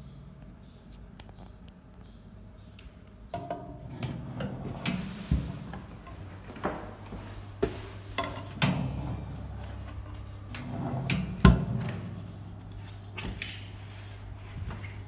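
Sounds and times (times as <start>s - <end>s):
low steady hum: 0.0s - 15.0s
oven racks and door clicking: 2.8s - 15.0s.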